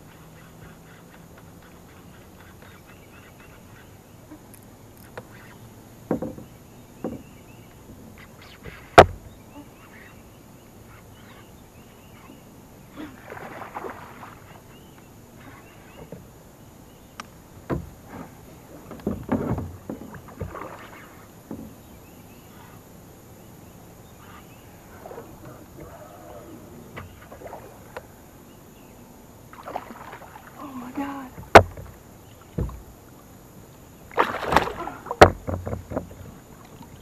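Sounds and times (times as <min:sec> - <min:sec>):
paddle strokes splashing water: 0:00.0 - 0:37.0
kayak knocks: 0:05.0 - 0:09.5, 0:13.3 - 0:16.4, 0:17.0 - 0:22.7, 0:26.8 - 0:28.1, 0:29.5 - 0:37.0.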